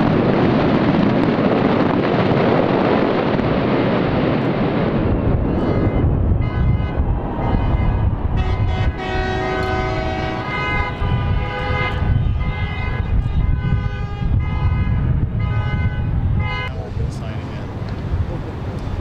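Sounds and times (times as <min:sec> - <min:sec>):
low rumble: 0:00.0 - 0:19.0
horns sounding long tones: 0:05.4 - 0:17.6.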